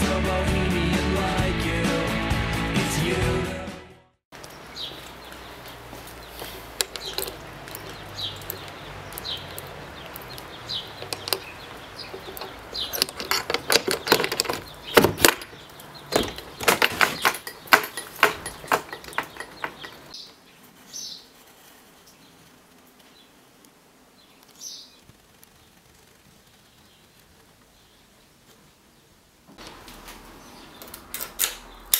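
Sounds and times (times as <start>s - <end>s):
bird chirping: 4.4s - 21.3s, 24.1s - 25.8s, 30.3s - 31.9s
padlock and bolt latch clanking: 10.8s - 20.1s.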